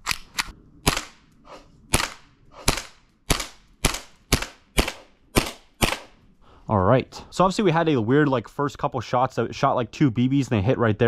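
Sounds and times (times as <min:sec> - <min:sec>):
airsoft pistol shots: 0:00.8 - 0:01.2, 0:01.9 - 0:06.2.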